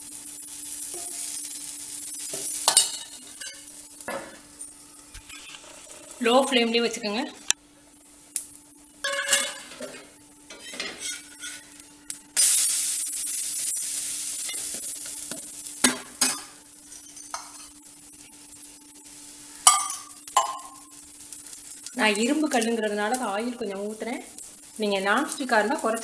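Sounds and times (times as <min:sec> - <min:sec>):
batter sizzling on hot pan: 0:00.0 - 0:26.0.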